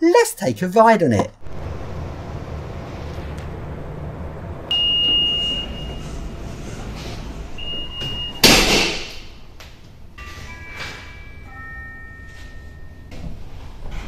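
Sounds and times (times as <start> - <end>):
low hum: 1.3 - 8.5
sliding doors shutting: 1.4 - 9.6
high warning beep: 4.7 - 6.2, 7.6 - 8.5.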